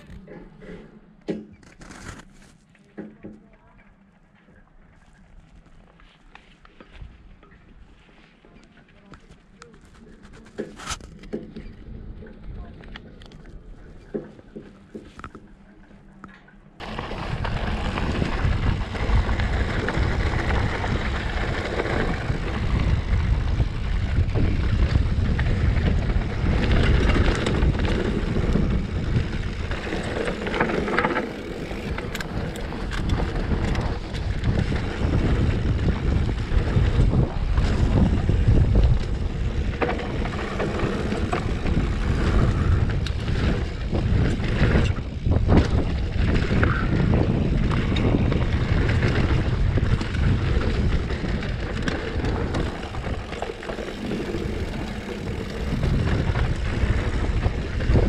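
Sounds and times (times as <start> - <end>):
tyres rumbling on dirt trail: 0.0 - 58.0
bike chain and frame rattling: 16.5 - 58.0
wind buffeting microphone: 16.8 - 58.0.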